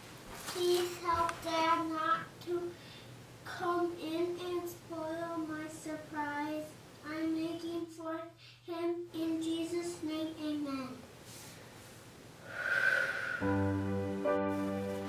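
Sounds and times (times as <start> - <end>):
child singing: 0.6 - 2.8, 3.4 - 11.0.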